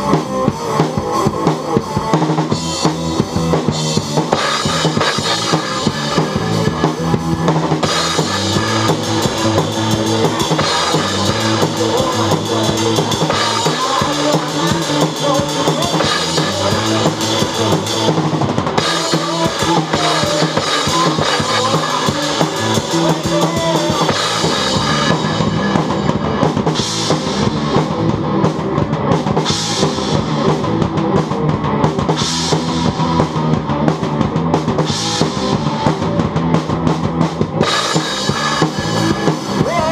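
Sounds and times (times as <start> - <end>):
drum kit playing rock beat: 0.0 - 39.9
recorded rock song: 0.0 - 39.9.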